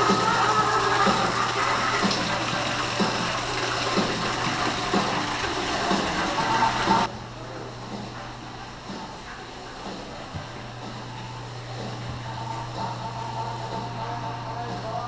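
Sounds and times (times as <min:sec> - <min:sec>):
rushing water: 0:00.0 - 0:07.1.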